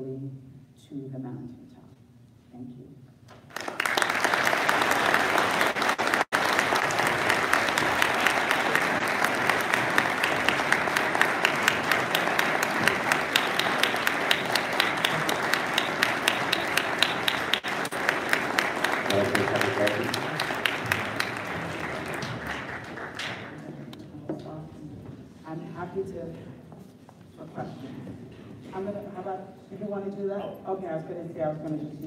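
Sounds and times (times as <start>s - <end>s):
audience applauding: 3.5s - 23.7s.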